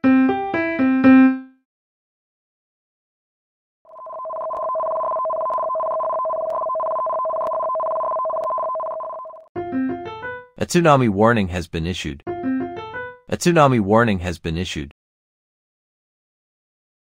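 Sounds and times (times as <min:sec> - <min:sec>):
two-pitch electronic alarm tone: 0:03.9 - 0:09.5.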